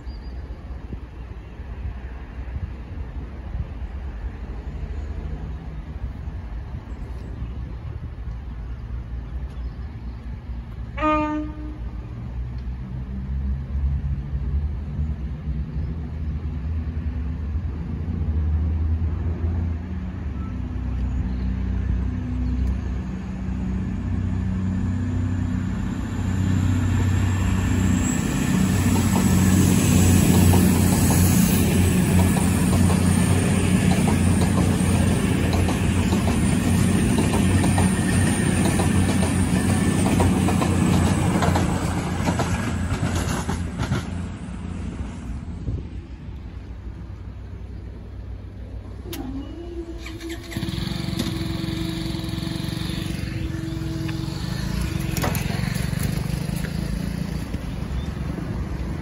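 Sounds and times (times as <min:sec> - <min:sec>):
diesel train engines humming: 0:00.0 - 0:59.0
train wheels clickety-clack: 0:27.9 - 0:44.7, 0:54.1 - 0:57.7.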